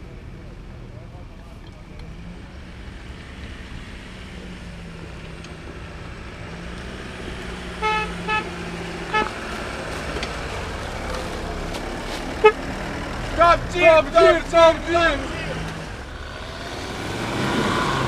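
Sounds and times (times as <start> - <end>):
car engine approaching: 0.0 - 18.0
car horn toots: 7.8 - 9.8, 12.3 - 12.7, 13.4 - 15.6.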